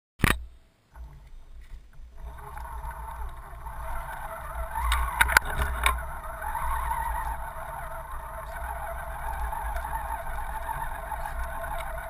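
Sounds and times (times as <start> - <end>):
click: 0.2 - 6.9
water churning: 0.9 - 12.0
toy car motor running: 2.2 - 12.0.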